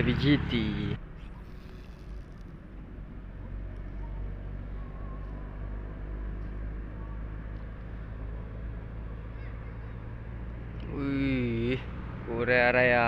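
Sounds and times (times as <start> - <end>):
boat engine humming: 0.0 - 12.3.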